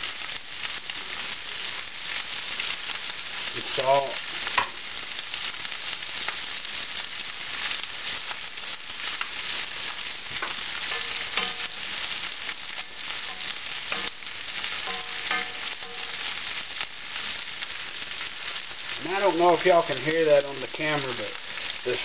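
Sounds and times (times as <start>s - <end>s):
food sizzling in a skillet: 0.0s - 22.0s
wooden spoon scraping a pan: 10.3s - 16.6s.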